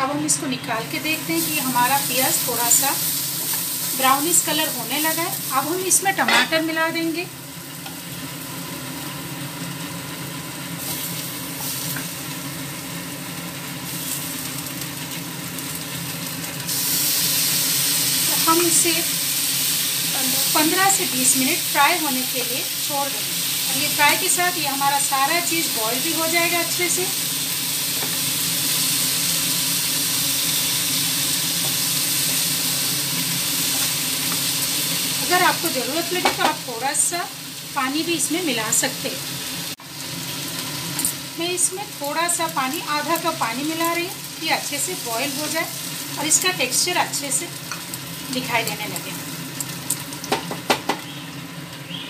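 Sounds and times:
food sizzling in hot oil: 0:00.0 - 0:52.0.

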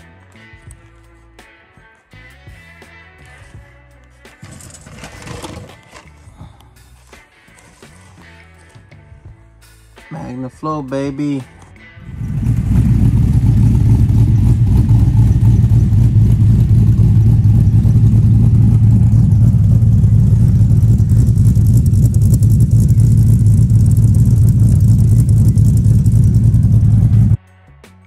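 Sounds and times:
engine idling exhaust rumble: 0:11.6 - 0:27.4.

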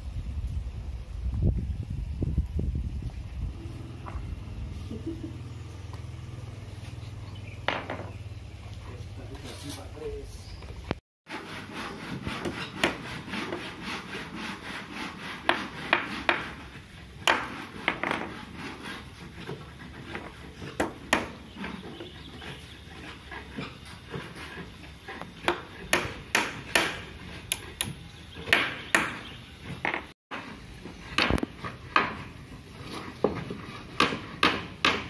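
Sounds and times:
wood scraping and knocking: 0:07.6 - 0:08.2, 0:10.6 - 0:35.0.

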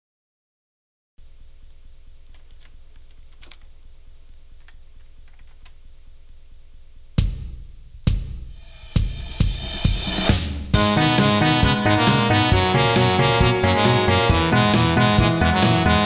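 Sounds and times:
loud drum hits: 0:07.2 - 0:12.0
held synth chord: 0:10.8 - 0:16.0.

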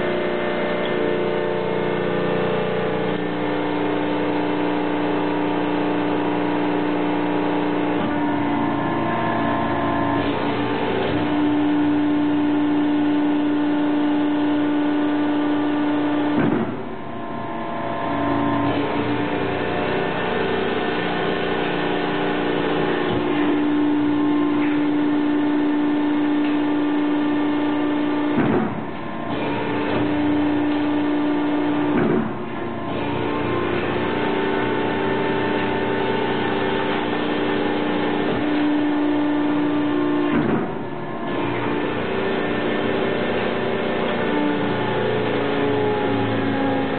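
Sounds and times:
press machine hum: 0:00.0 - 0:46.9.

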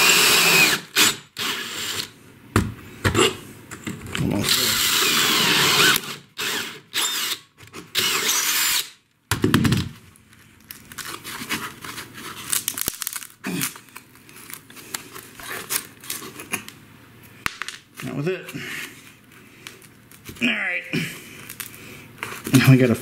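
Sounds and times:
drill with hole saw cutting wood: 0:00.0 - 0:02.1, 0:04.4 - 0:09.0.

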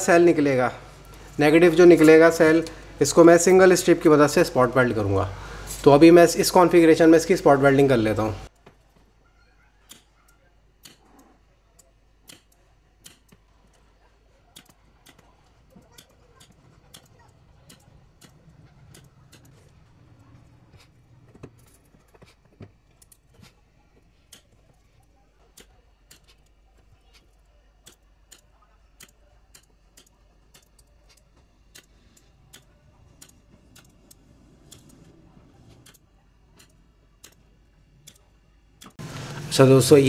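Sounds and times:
spot welder sharp clicks: 0:09.9 - 0:13.8, 0:14.5 - 0:19.5, 0:25.5 - 0:35.0, 0:35.8 - 0:37.4, 0:38.0 - 0:39.4.

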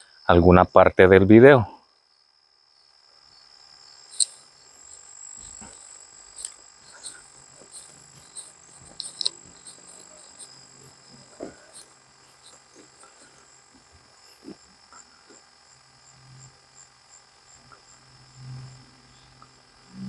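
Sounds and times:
crickets and insects chirping: 0:00.0 - 0:20.0
light ticks and scuffs: 0:04.1 - 0:14.6.

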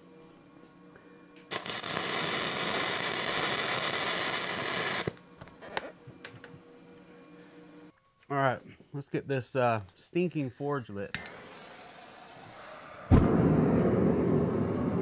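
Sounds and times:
arc welding crackling: 0:01.5 - 0:05.3.

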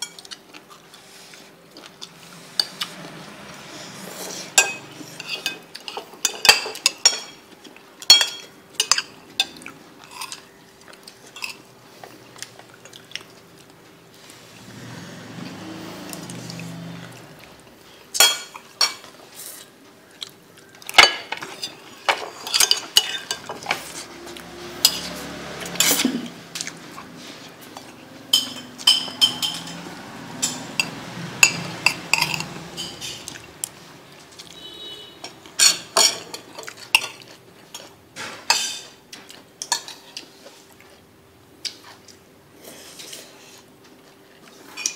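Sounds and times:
metal spoon clinking on ceramic bowl: 0:28.3 - 0:33.3.

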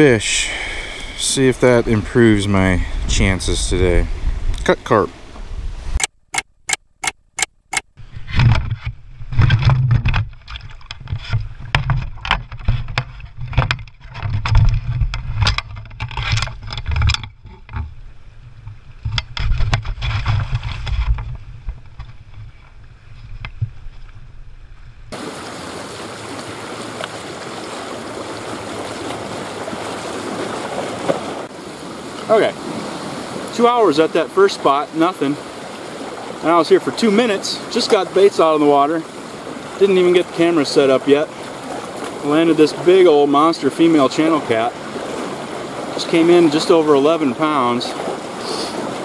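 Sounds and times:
wind buffeting microphone: 0:00.3 - 0:06.0
waves breaking on rocky shore: 0:25.1 - 0:49.0.

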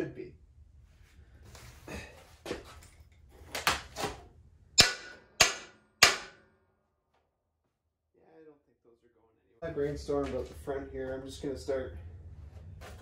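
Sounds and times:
hammer striking steel frame: 0:04.8 - 0:06.6.

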